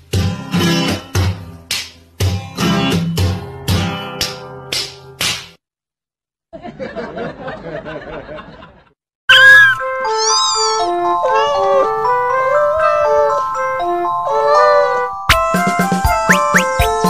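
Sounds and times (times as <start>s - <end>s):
laughter: 6.5s - 9.0s
loud music tune: 15.3s - 17.0s.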